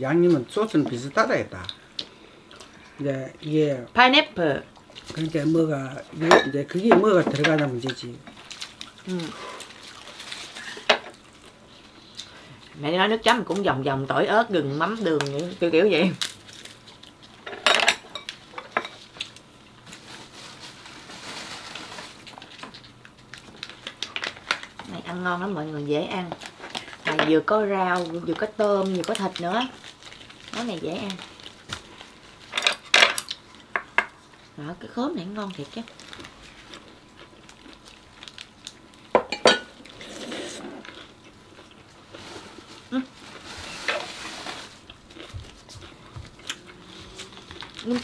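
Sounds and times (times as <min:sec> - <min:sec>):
dishes and utensils clinking: 0:06.2 - 0:07.6, 0:39.2 - 0:39.8.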